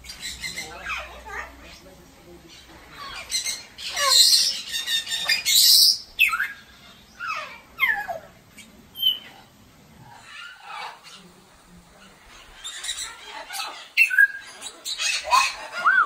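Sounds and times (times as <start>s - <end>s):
parrot harsh screeches: 12.6s - 16.0s.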